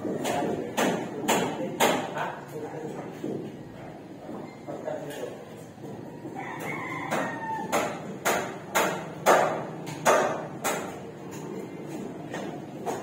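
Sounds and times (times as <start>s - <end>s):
hammer strikes: 0.0s - 2.2s, 7.0s - 13.0s
rooster crowing: 6.0s - 8.0s.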